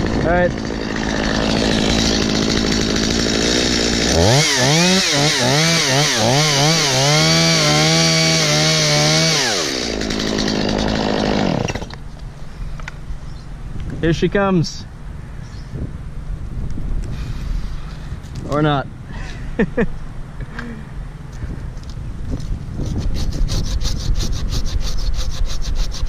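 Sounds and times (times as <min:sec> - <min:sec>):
chainsaw cutting wood: 0:00.0 - 0:12.0, 0:22.8 - 0:26.0.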